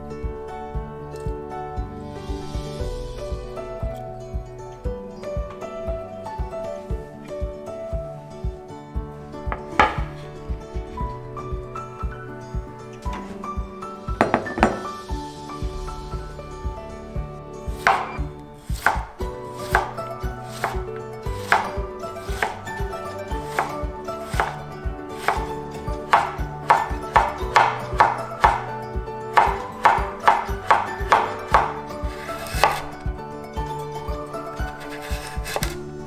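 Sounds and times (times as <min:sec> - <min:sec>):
knife chopping on wooden board: 0:09.8 - 0:10.1, 0:17.8 - 0:22.8, 0:23.4 - 0:24.6, 0:25.2 - 0:28.7, 0:29.3 - 0:33.0, 0:34.7 - 0:35.8.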